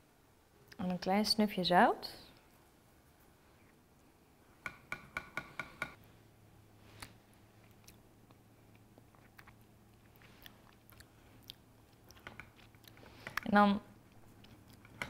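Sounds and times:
faint low hum: 6.0 - 15.0.

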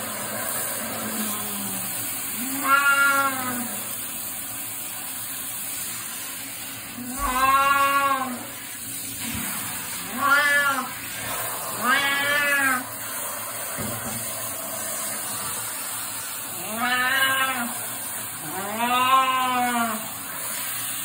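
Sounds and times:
shower spraying water: 0.0 - 21.0
cat meowing: 2.4 - 3.8, 10.1 - 11.0, 11.8 - 12.9, 16.6 - 17.8, 18.4 - 20.0.

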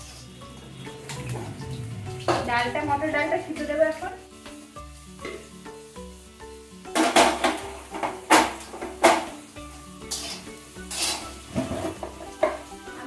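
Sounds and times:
metal spatula scraping pot: 0.0 - 3.8, 10.0 - 12.6
background music: 0.0 - 13.0.

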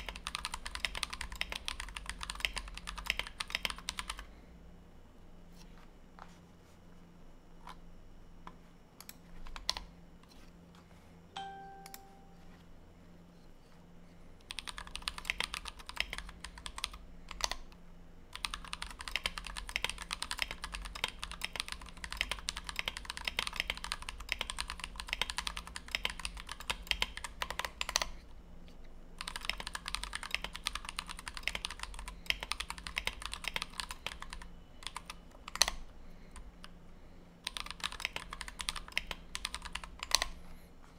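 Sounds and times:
mechanical keyboard typing: 0.0 - 4.3, 9.0 - 9.9, 14.4 - 28.2, 29.2 - 36.7, 37.4 - 40.4
brief electronic tone: 11.4 - 12.6.

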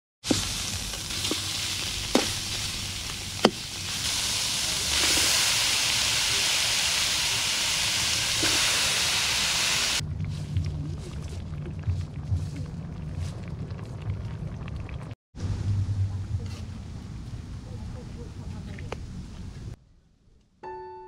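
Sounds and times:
food sizzling in a wok: 0.2 - 10.0.

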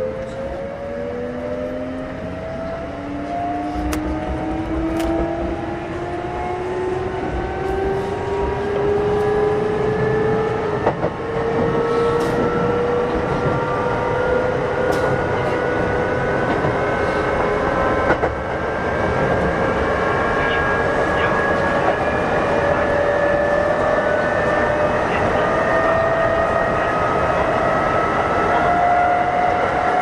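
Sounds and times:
train running rumble: 2.0 - 30.0.

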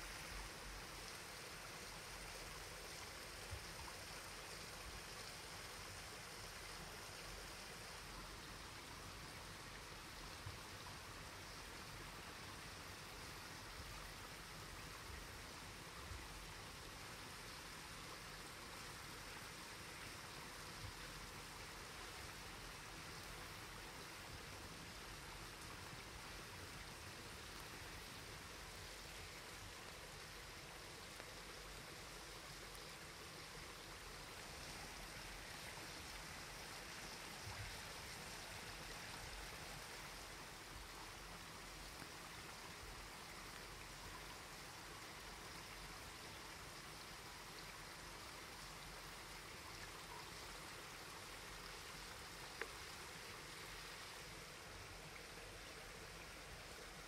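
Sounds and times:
faint rushing hiss: 0.0 - 57.0
faint ticks: 23.0 - 54.9.

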